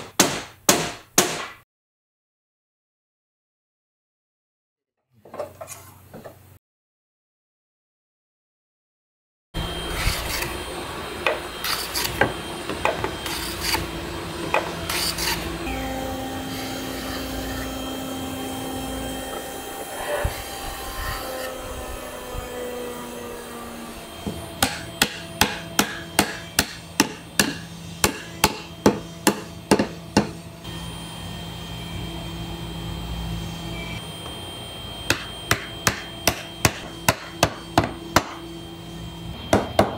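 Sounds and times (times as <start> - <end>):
steady low hum: 9.6 - 39.9
hand plane scraping wood: 14.8 - 15.5.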